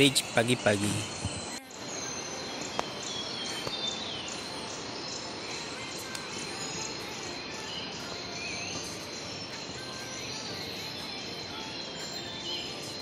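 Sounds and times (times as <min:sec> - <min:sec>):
birds chirping: 0:00.0 - 0:13.0
high insect trill: 0:00.0 - 0:13.0.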